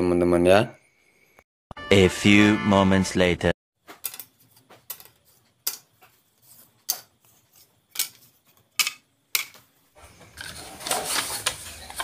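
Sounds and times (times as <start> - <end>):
rustling: 10.0 - 12.0.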